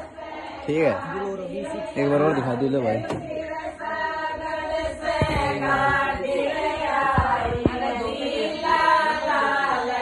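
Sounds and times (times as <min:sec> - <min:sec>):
women singing together: 0:00.0 - 0:10.0
low knocks: 0:05.0 - 0:06.3, 0:07.0 - 0:08.2.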